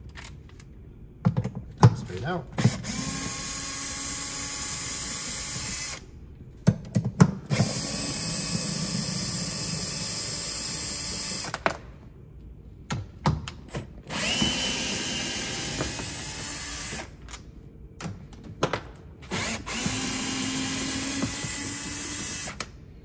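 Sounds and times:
cordless drill motor running: 2.6 - 6.0, 7.5 - 11.5, 14.1 - 17.1, 19.3 - 22.6.

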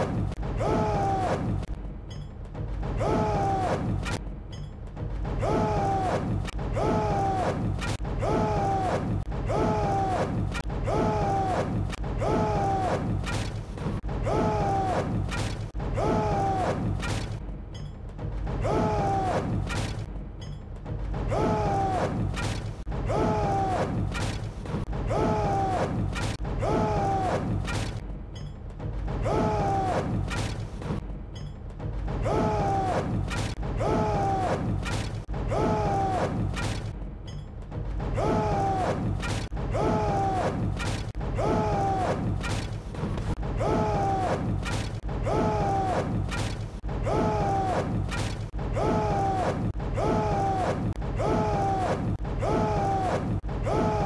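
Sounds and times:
men's voices shouting in rhythm: 25.0 - 27.6, 39.7 - 40.7, 41.3 - 42.4, 43.6 - 44.5, 45.2 - 46.3, 47.0 - 48.1, 48.7 - 54.0.

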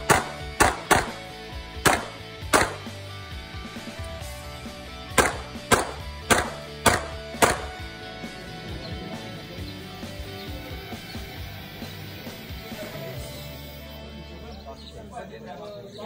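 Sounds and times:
pistol shots: 0.0 - 3.0, 5.1 - 7.9
background music: 0.0 - 16.0.

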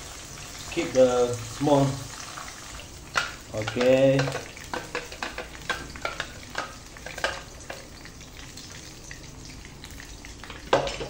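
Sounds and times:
paste sizzling in hot oil: 0.0 - 11.0
spatula scraping and tapping: 3.2 - 7.8.

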